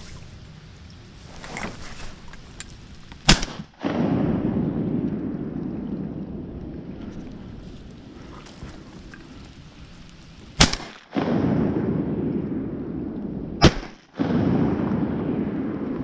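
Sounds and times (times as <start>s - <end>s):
shotgun blasts: 3.2s - 5.2s, 10.6s - 12.6s, 13.6s - 15.8s.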